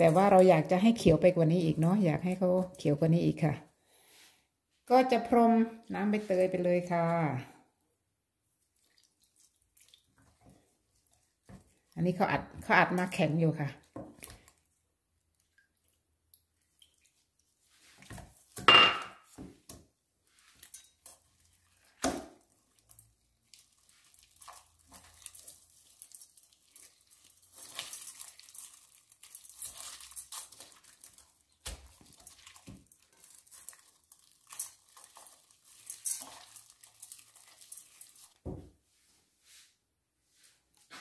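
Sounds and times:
knocks and clinks on steel bowl: 18.6 - 19.2.

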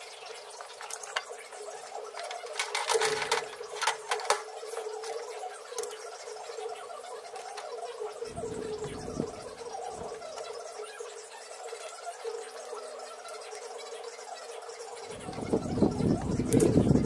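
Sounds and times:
steady hum: 0.0 - 17.0
clicks and clatter of gear: 2.2 - 5.2.

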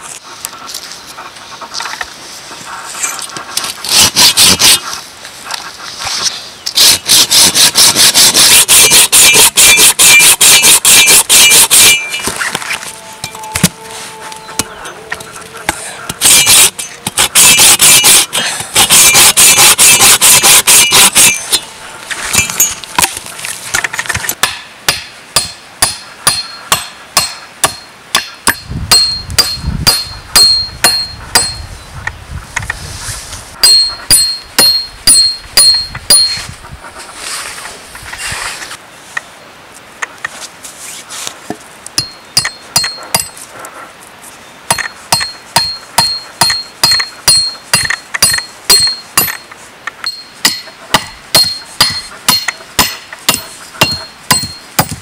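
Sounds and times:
hand saw cutting wood: 2.6 - 5.0, 5.9 - 12.9, 13.6 - 23.3, 50.4 - 55.0
hammer blows driving nails: 6.8 - 12.0, 16.2 - 21.4, 44.7 - 55.0.

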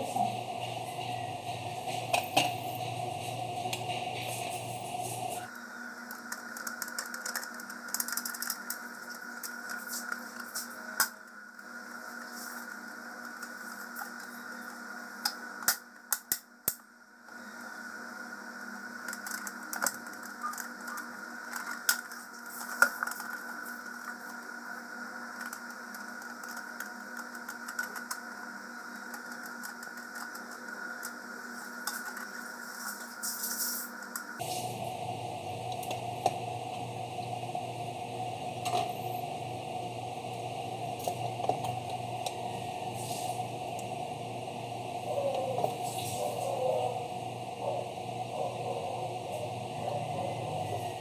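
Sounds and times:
steady background hum: 0.0 - 51.0
plastic parts clicking and rattling: 6.1 - 10.5, 19.0 - 24.4.

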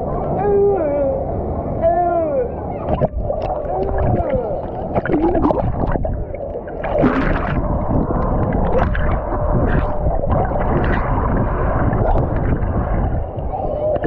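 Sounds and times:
water sloshing and churning: 2.7 - 14.0
small water splashes: 2.8 - 14.0.

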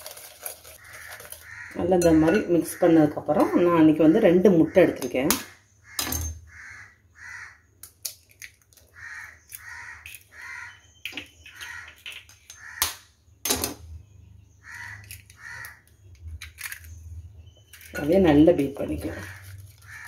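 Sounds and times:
eggs cracking: 0.0 - 3.7, 7.8 - 13.2, 14.7 - 20.0
bird calling: 8.9 - 12.8.

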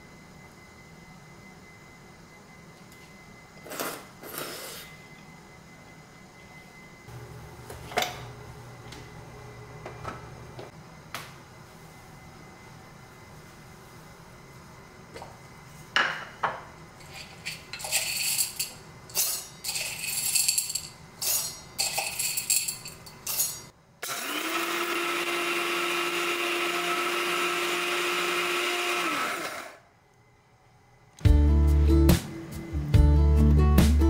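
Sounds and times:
coffee beans rattling into cup: 17.0 - 23.4
coffee grinder whine: 24.0 - 29.8.

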